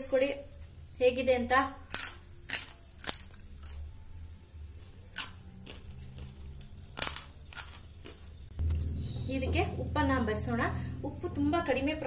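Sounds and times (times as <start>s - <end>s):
faint low hum: 0.0s - 12.0s
fried chips crunching: 1.9s - 3.9s, 4.8s - 8.4s.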